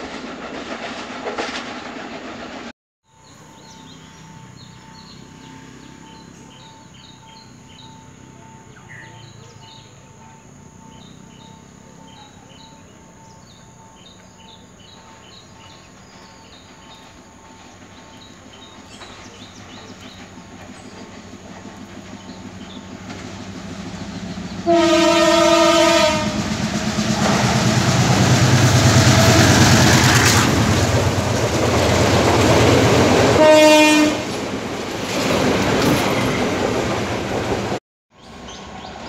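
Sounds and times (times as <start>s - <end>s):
diesel train droning: 0.0s - 39.0s
birds chirping: 3.1s - 24.9s.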